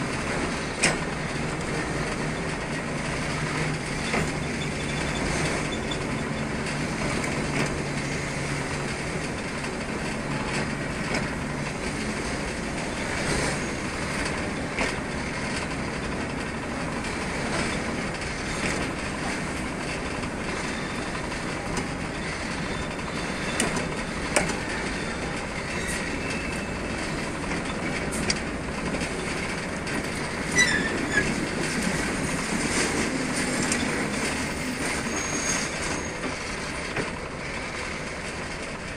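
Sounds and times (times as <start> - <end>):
diesel locomotive rolling slowly: 0.0 - 38.9
wheels clicking over rail joints: 0.0 - 38.9
wheel squeal: 1.7 - 8.8, 12.8 - 15.7, 19.8 - 28.2, 30.3 - 36.7.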